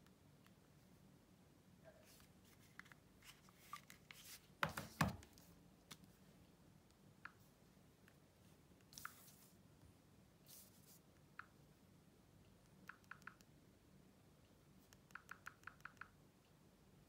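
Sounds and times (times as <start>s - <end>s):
fingers tapping phone screens: 8.9s - 9.5s, 12.8s - 13.5s, 14.8s - 16.2s.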